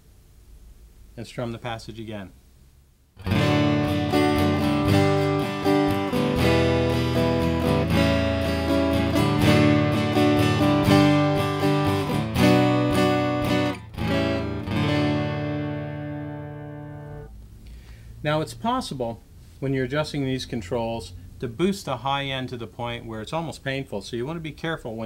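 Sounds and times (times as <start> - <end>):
acoustic guitar strumming: 3.2 - 17.9.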